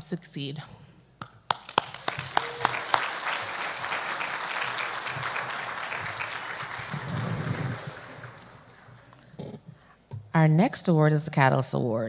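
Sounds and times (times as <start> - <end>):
audience applauding: 1.5 - 9.3.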